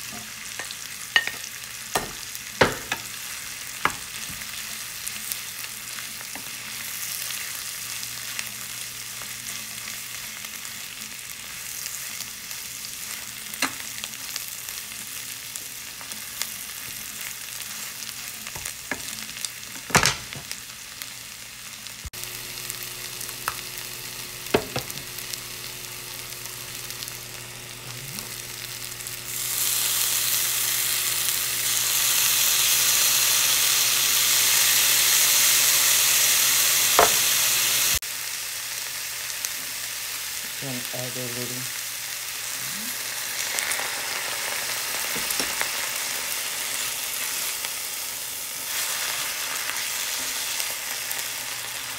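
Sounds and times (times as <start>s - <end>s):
vegetables sizzling in a frying pan: 0.0s - 51.9s
wooden spoon knocking on pan: 2.0s - 3.1s, 24.5s - 25.0s.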